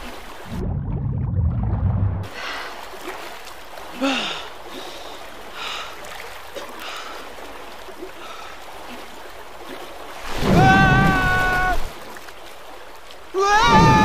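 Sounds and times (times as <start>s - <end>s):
water splashing and sloshing: 0.0s - 14.0s
muffled underwater rumble: 0.4s - 2.3s
person gasping for breath: 4.0s - 4.5s.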